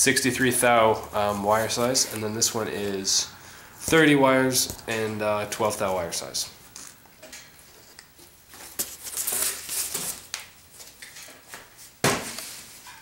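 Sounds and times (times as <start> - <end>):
cardboard packaging rustling: 0.8 - 3.2, 7.6 - 11.2.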